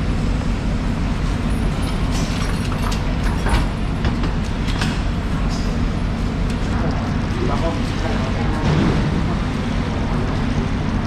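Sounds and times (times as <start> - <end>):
low mechanical rumble: 0.0 - 11.0.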